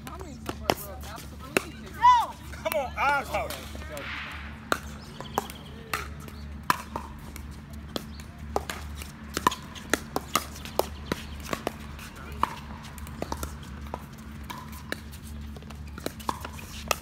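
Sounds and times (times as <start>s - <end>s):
paddles hitting plastic ball: 4.7s - 17.0s.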